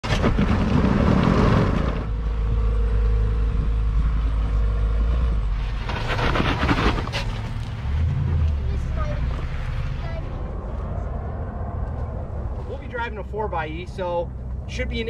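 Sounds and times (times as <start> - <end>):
tyres scraping and crunching on rock: 0.0 - 2.2, 5.6 - 8.6
low drivetrain rumble: 0.0 - 15.0
rush of noise: 5.5 - 14.7
steady whine: 9.3 - 15.0.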